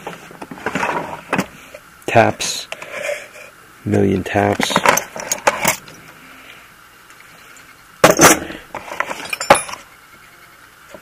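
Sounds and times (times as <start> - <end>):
steel tools clinking and rattling: 4.6 - 6.0, 8.0 - 9.9.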